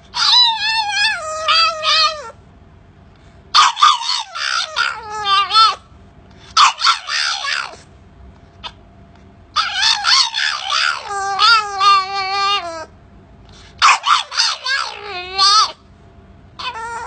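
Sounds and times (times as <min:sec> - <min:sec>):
puppy barking high-pitched: 0:00.1 - 0:02.4, 0:03.5 - 0:05.8, 0:06.5 - 0:07.8, 0:09.6 - 0:12.9, 0:13.8 - 0:15.8, 0:16.6 - 0:17.0.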